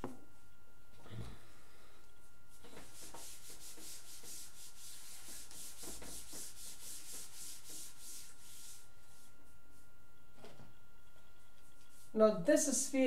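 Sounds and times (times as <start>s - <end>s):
duster scrubbing a blackboard: 2.5s - 9.9s.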